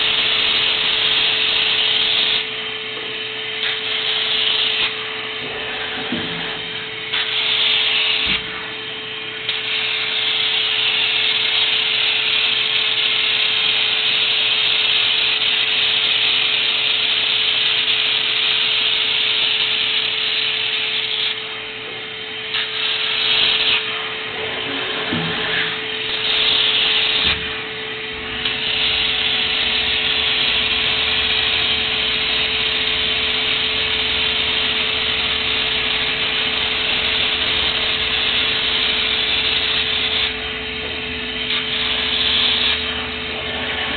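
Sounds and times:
constant hum: 0:00.0 - 0:10.1, 0:23.5 - 0:43.9
laser welder hissing: 0:00.0 - 0:43.9.

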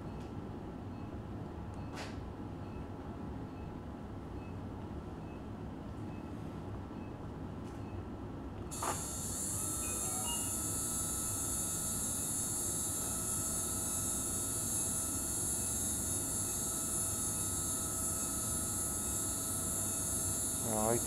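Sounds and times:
high-pitched surgical drill: 0:08.7 - 0:21.0.

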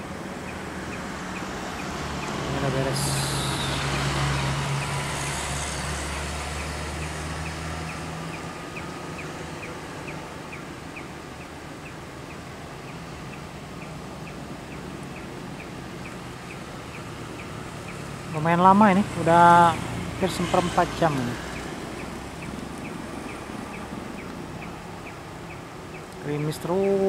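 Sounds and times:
road noise: 0:00.0 - 0:27.0
vehicle engine hum: 0:00.0 - 0:27.0
faint regular ticking: 0:19.4 - 0:27.0.

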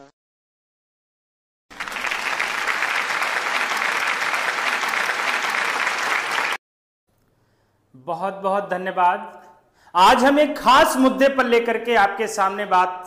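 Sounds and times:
applause: 0:01.7 - 0:06.6.

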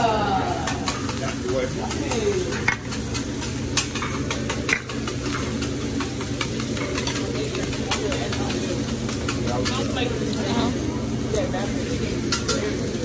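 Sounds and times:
fried rice sizzling: 0:00.0 - 0:13.0
metal spatulas clacking on griddle: 0:00.6 - 0:10.0, 0:12.3 - 0:12.8.

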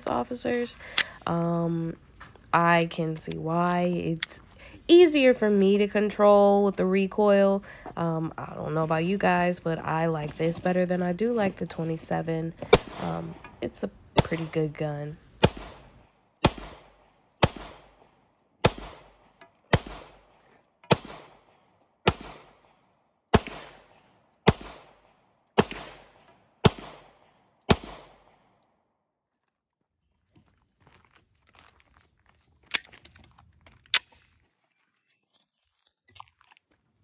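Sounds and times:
pistol shots echoing: 0:15.4 - 0:15.8, 0:16.4 - 0:18.0, 0:18.6 - 0:20.3, 0:20.9 - 0:28.5.

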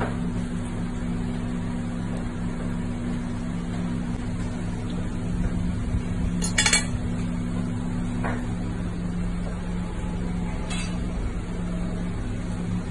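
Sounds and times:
steady low hum: 0:00.0 - 0:12.9
fork clinking on ceramic platter: 0:06.4 - 0:07.0.

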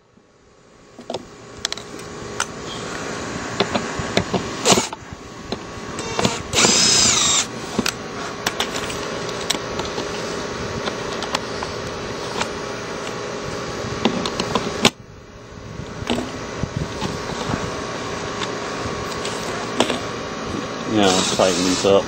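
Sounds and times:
cordless drill driving a screw: 0:04.6 - 0:05.0, 0:06.0 - 0:08.0, 0:21.0 - 0:22.0.

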